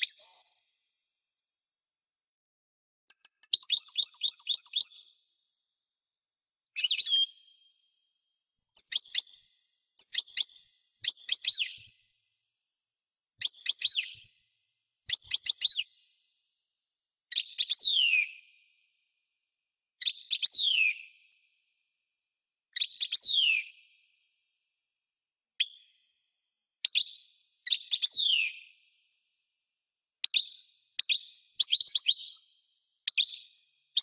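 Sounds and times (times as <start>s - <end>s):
bird twittering song: 0.0s - 0.9s, 3.1s - 5.5s, 6.7s - 8.1s, 8.7s - 12.0s, 13.4s - 14.4s, 15.1s - 16.2s, 17.3s - 18.8s, 20.0s - 21.4s, 22.8s - 24.0s, 25.6s - 26.1s, 26.8s - 28.9s, 30.2s - 34.0s.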